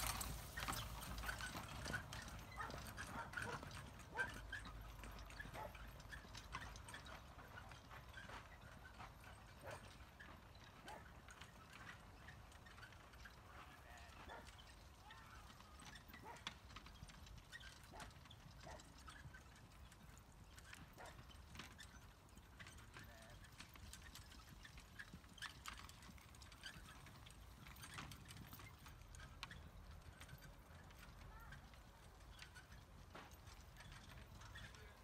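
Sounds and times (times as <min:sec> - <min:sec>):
horse hoofbeats on grass: 0:00.0 - 0:35.0.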